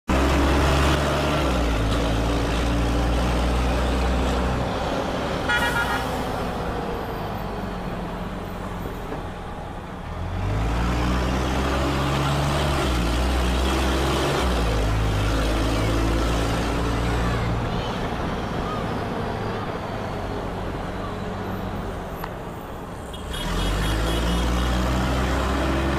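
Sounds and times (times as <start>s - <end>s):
bus diesel engine: 0.0s - 25.9s
horn toot: 5.5s - 6.2s.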